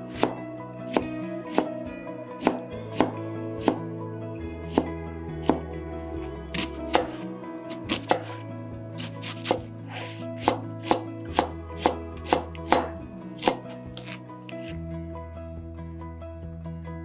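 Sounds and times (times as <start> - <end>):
knife chopping on cutting board: 0.1 - 1.8, 2.4 - 3.8, 4.7 - 5.6, 6.5 - 7.2, 7.8 - 8.4, 9.0 - 14.2.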